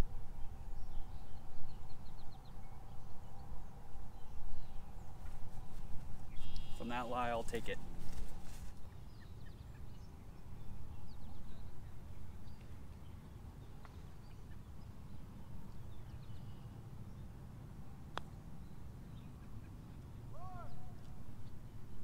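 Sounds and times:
distant bird chirps: 0.4s - 12.7s.

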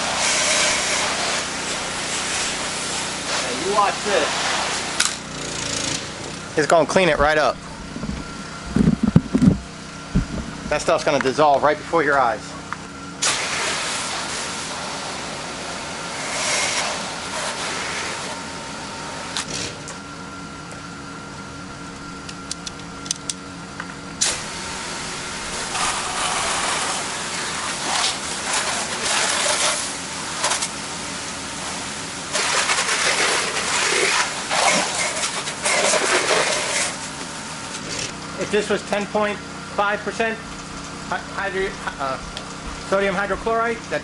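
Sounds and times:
spray hissing on siding: 0.0s - 6.4s, 13.2s - 18.4s, 24.2s - 37.2s
pressure washer engine running: 0.0s - 20.5s, 23.6s - 44.0s.

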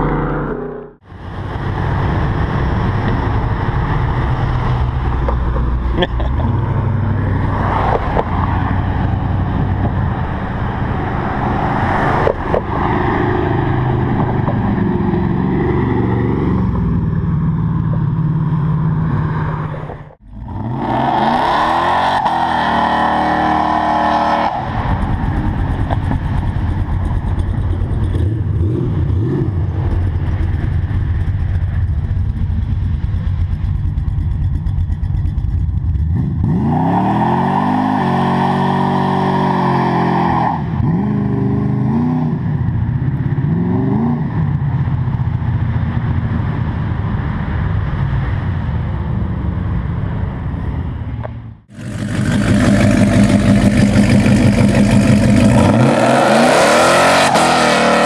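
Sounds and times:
pickup engine revving: 51.7s - 58.0s.

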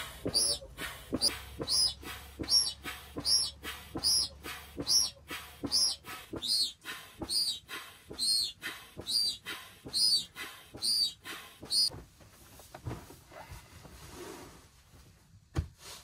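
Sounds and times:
air pump knock: 0.0s - 11.9s.

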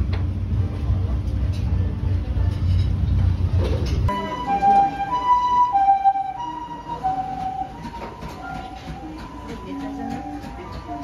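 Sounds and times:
two-tone ambulance siren: 4.1s - 11.0s.

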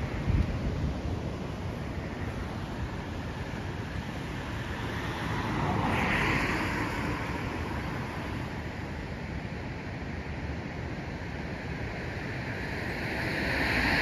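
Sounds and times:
car passing: 0.0s - 10.4s, 11.0s - 14.0s
wind noise on microphone: 0.0s - 14.0s.

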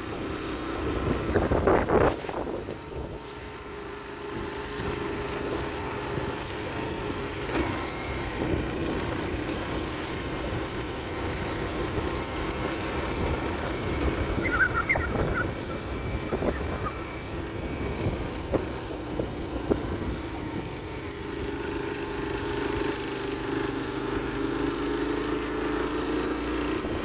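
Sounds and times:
motorcycle engine running: 0.0s - 27.0s
wind rumbling on microphone: 0.1s - 3.4s, 8.2s - 21.5s.

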